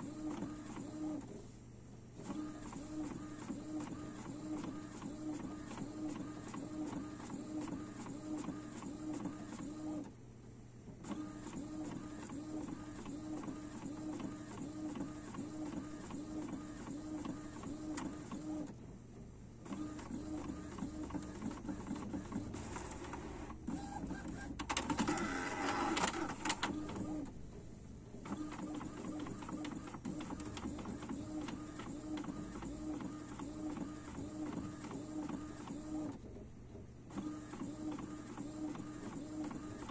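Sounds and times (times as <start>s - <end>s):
inkjet printer print head shuttling: 19.7s - 27.3s, 28.2s - 36.3s.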